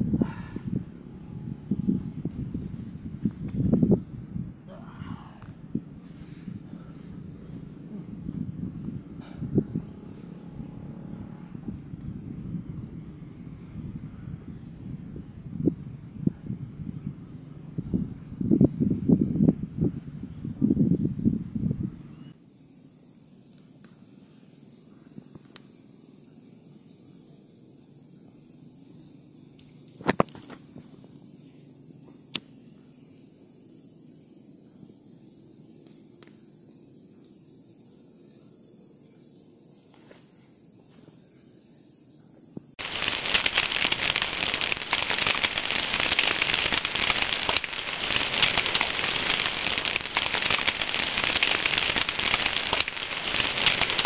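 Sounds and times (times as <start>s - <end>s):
insects chirring: 0.0s - 54.0s
embers crackling and hissing: 4.6s - 8.7s, 29.6s - 31.4s, 42.6s - 54.0s
burning wood popping: 30.0s - 30.9s, 42.8s - 54.0s.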